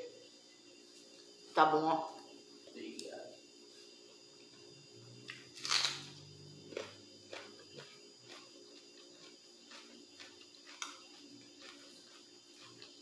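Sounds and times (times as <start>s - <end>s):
biting into raw onion: 5.4s - 6.2s
close-up chewing: 6.7s - 13.0s.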